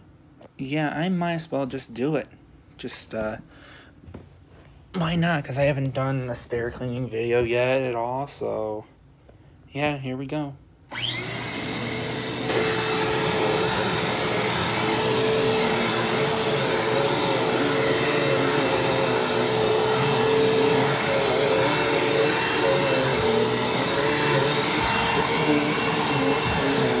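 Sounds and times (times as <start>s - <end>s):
hand vacuum motor whining: 10.9s - 27.0s.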